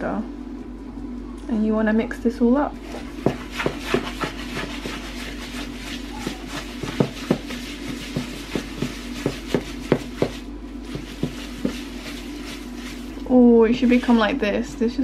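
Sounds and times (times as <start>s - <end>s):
steady low hum: 0.0s - 15.0s
whisk scraping plastic bowl: 2.8s - 14.4s.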